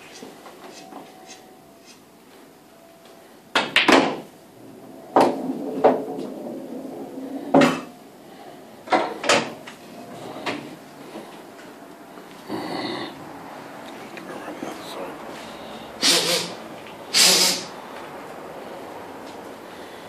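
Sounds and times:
pool balls clacking: 0:03.6 - 0:08.0
balls rolling on table: 0:03.8 - 0:08.0.

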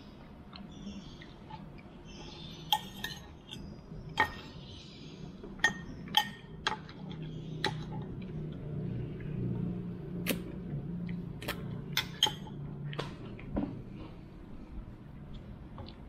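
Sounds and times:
metal spoon clinking on ceramic bowl: 0:02.7 - 0:03.6, 0:05.6 - 0:06.9, 0:12.0 - 0:12.5.

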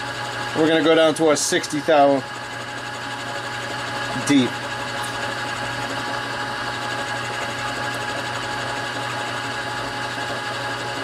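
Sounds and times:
milling machine motor hum: 0:00.0 - 0:11.0.

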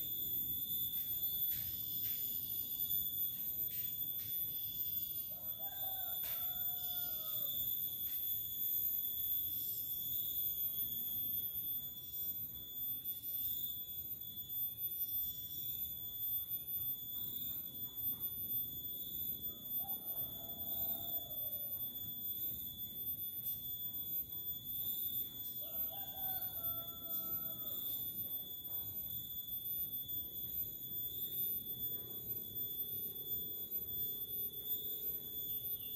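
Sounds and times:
high-pitched whine: 0:00.0 - 0:35.9
rooster crowing: 0:05.2 - 0:07.8, 0:19.5 - 0:21.9, 0:25.5 - 0:28.8.

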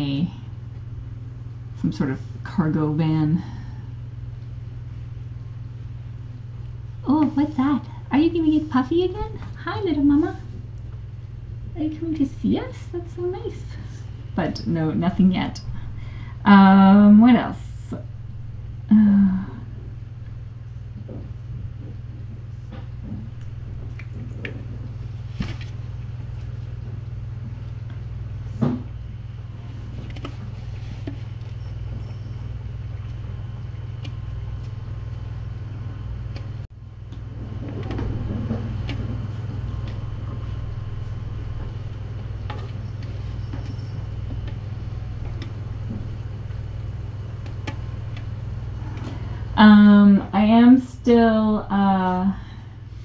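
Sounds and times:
low room hum: 0:00.0 - 0:53.0.

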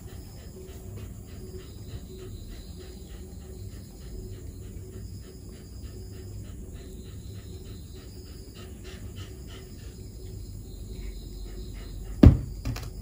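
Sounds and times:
sharp loud knock: 0:12.2 - 0:12.9.

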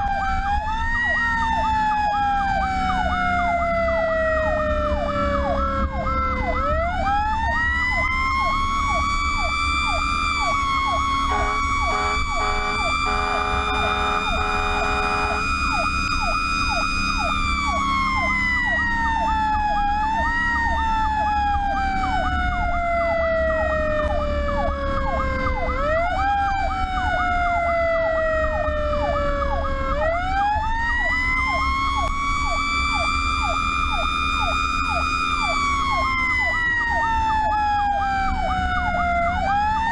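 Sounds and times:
fast electronic yelp siren: 0:00.0 - 0:39.9
fire truck engine running: 0:00.0 - 0:39.9
wailing siren: 0:00.0 - 0:39.9
short horn blasts: 0:11.3 - 0:15.4.

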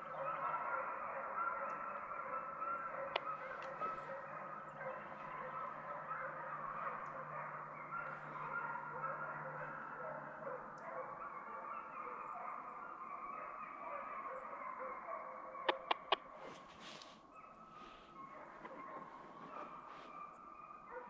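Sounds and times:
distant hounds baying: 0:00.0 - 0:21.0
sharp clicks: 0:15.7 - 0:16.6.

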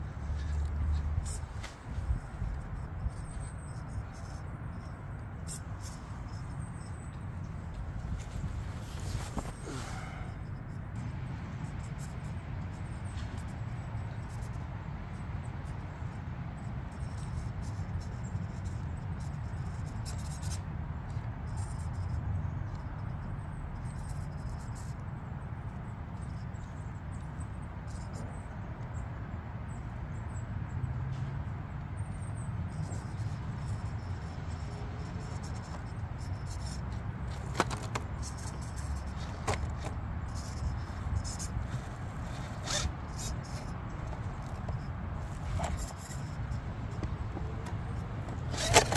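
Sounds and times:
toy truck motor rumbling: 0:00.0 - 0:28.2, 0:31.5 - 0:48.9
sharp clicks of truck tipping: 0:36.5 - 0:48.9.

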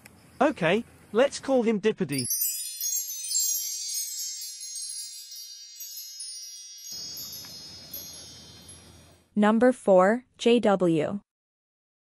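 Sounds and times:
tinkling chime: 0:02.1 - 0:09.3.

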